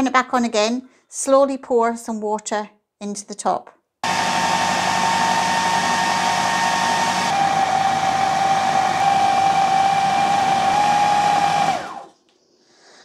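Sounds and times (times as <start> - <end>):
food processor motor whine: 4.0 - 12.2.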